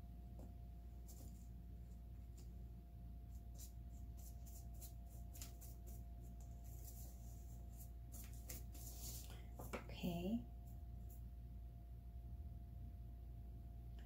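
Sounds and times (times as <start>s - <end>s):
steady low hum: 0.0s - 14.0s
paintbrush strokes and ticks: 3.3s - 9.7s.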